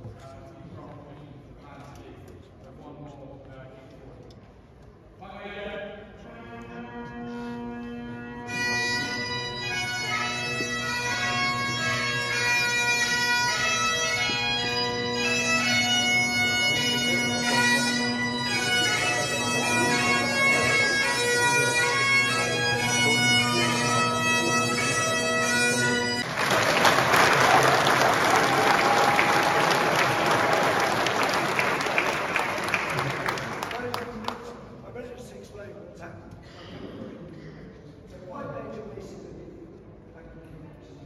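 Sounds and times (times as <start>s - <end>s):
bagpipes playing a tune: 6.8s - 33.7s
audience applause: 26.2s - 34.5s.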